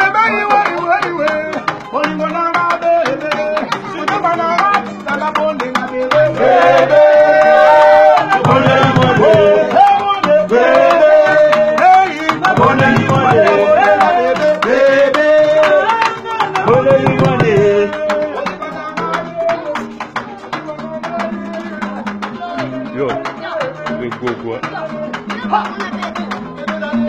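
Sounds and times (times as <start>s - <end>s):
electric guitars playing: 0.0s - 27.0s
man singing: 0.0s - 27.0s
percussive clicks beat: 0.1s - 27.0s.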